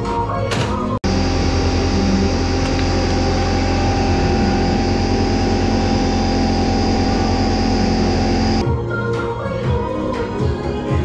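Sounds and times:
air compressor humming: 0:01.0 - 0:08.6.

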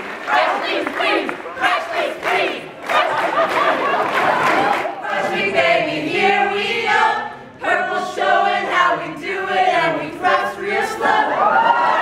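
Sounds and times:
group singing a cheer in unison: 0:00.0 - 0:12.0
overlapping shouts: 0:00.2 - 0:05.0.

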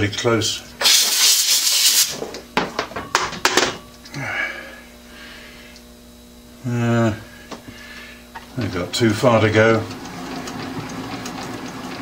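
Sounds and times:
lathe tool scraping hiss: 0:00.8 - 0:02.2.

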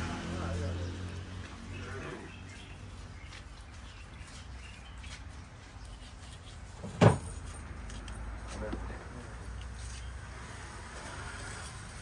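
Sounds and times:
knife scraping fish scales: 0:03.0 - 0:06.8.

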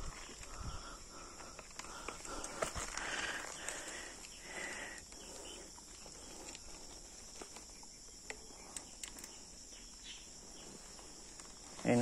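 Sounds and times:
insects droning: 0:00.0 - 0:12.0
light clicks: 0:08.2 - 0:09.4.

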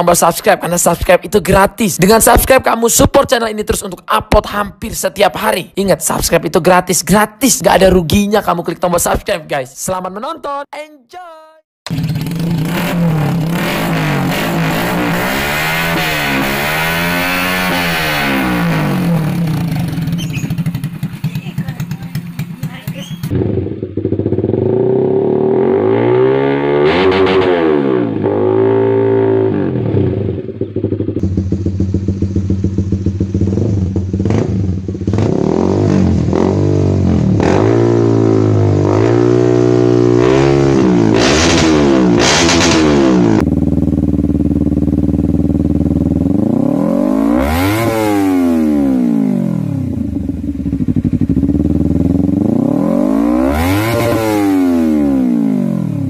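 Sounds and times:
motorcycle engine revving: 0:11.9 - 0:56.0.

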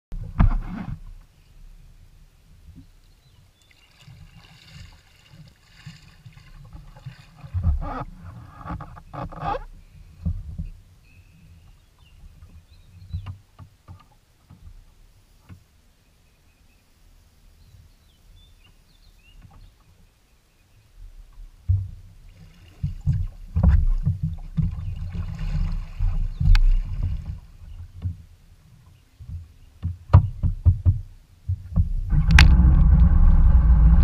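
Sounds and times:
water splashing against hull: 0:03.5 - 0:10.9, 0:21.2 - 0:34.0
knocks on hull: 0:21.6 - 0:22.0, 0:22.8 - 0:28.2, 0:29.2 - 0:33.4.

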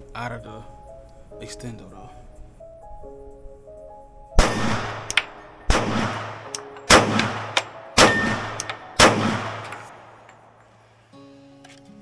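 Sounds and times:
pistol shots with ringing echo: 0:04.4 - 0:10.5.

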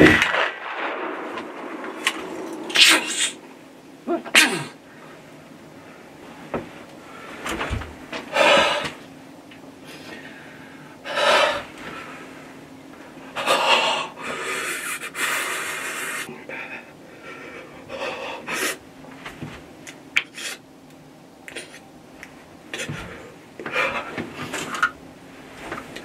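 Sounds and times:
person breathing hard: 0:08.3 - 0:09.0, 0:09.8 - 0:12.4, 0:13.4 - 0:18.8, 0:22.7 - 0:24.5.

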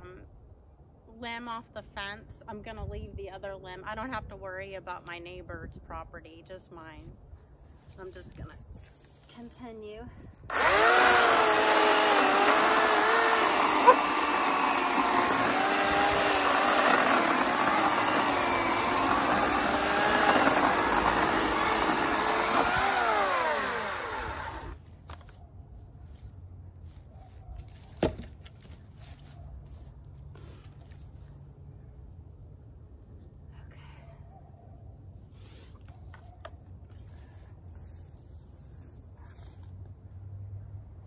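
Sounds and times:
electric chainsaw cutting wood: 0:10.5 - 0:24.8.

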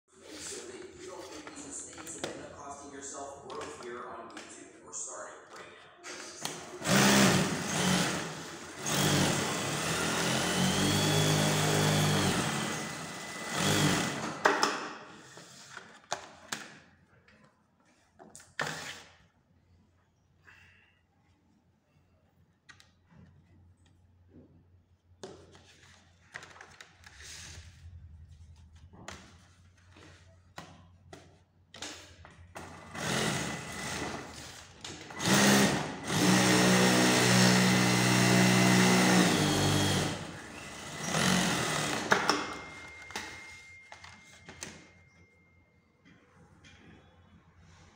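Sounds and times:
sewing machine stitching: 0:06.6 - 0:14.4, 0:32.6 - 0:42.2.

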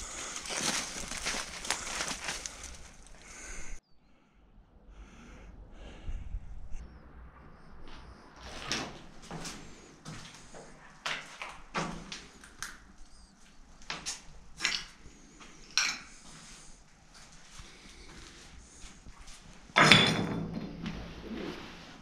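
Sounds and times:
footsteps crunching on rubble: 0:00.0 - 0:03.6.

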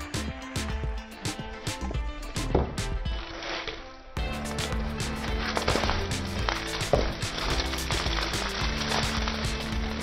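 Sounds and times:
background music: 0:00.0 - 0:10.0.

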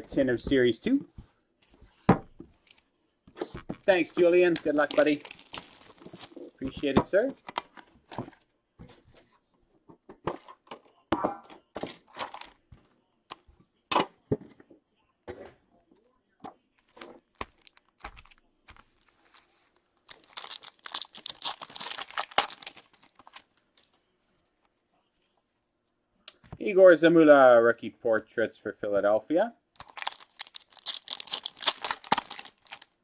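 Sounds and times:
card packs rustling and tapping: 0:03.4 - 0:08.4, 0:11.9 - 0:12.6, 0:16.8 - 0:19.4, 0:20.0 - 0:23.6, 0:29.8 - 0:33.0
foil pack crinkling and tearing: 0:03.9 - 0:06.6, 0:17.3 - 0:19.1, 0:20.0 - 0:23.6, 0:29.8 - 0:33.0.

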